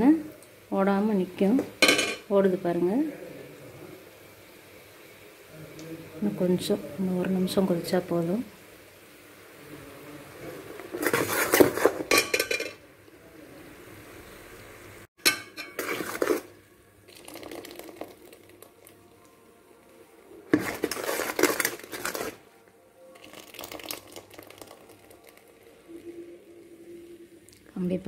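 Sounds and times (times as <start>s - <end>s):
syrup boiling hiss: 13.0s - 22.4s, 23.0s - 28.0s
metal ladle scraping metal pot: 15.3s - 16.5s, 20.5s - 22.4s.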